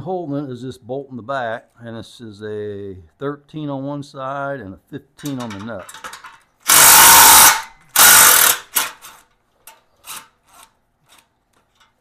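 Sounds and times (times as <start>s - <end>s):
power driver spinning bolt: 5.3s - 9.2s.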